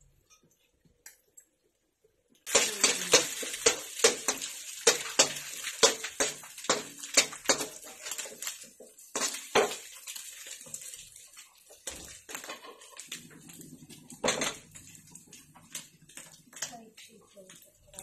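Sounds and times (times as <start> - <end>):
spatula scraping a wok: 2.5 - 16.6.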